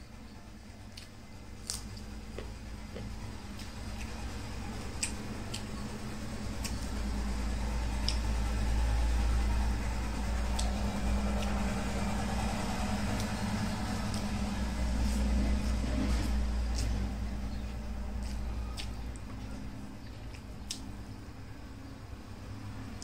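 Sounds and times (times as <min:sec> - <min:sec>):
low steady hum: 0:00.0 - 0:23.0
wet chewing clicks: 0:00.8 - 0:06.0, 0:06.6 - 0:07.3, 0:07.9 - 0:08.6, 0:10.2 - 0:21.1.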